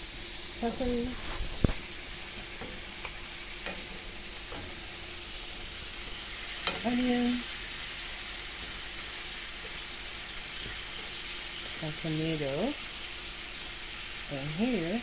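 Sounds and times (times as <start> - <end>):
fish frying in butter: 0.0 - 15.0.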